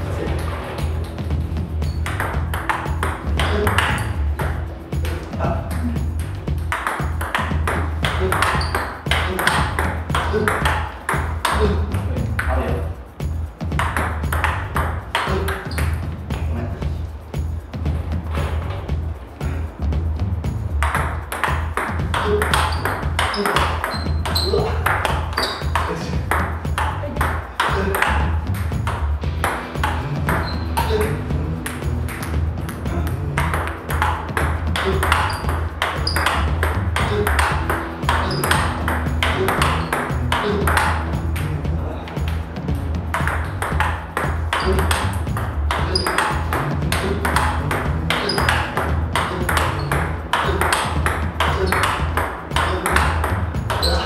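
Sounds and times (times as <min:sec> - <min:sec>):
steady low hum: 0:00.0 - 0:54.0
table tennis ball clicking: 0:06.2 - 0:11.6, 0:20.8 - 0:32.8, 0:33.4 - 0:41.5, 0:43.1 - 0:54.0.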